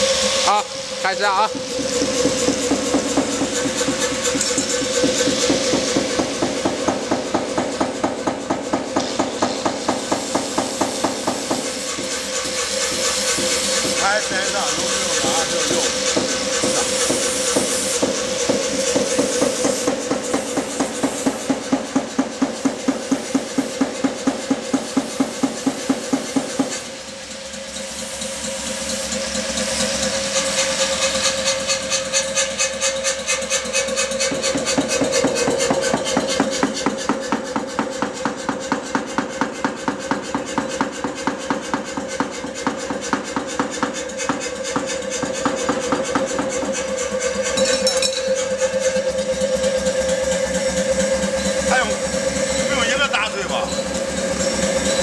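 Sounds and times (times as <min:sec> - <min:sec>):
motor hum: 0:00.0 - 0:27.0.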